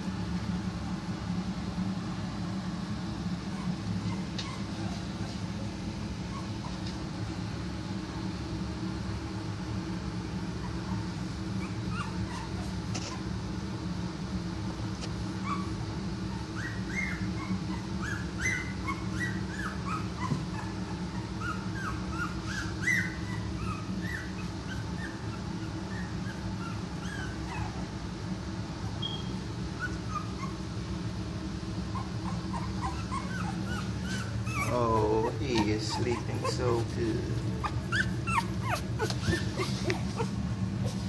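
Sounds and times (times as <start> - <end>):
steady low hum: 0.0 - 41.0
puppies whimpering and squeaking: 3.2 - 7.3, 10.5 - 13.4, 15.3 - 31.0, 31.6 - 41.0.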